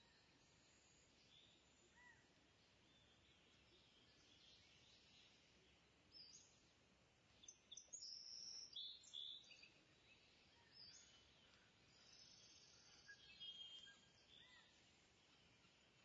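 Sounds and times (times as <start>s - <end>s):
faint background hiss: 0.0s - 16.0s
faint high chirps: 10.5s - 15.0s.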